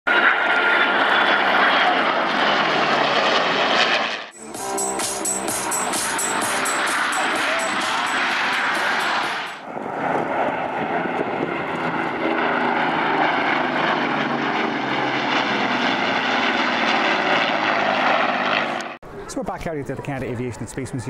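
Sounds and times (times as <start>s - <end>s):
piston-engine planes droning: 4.4s - 19.0s.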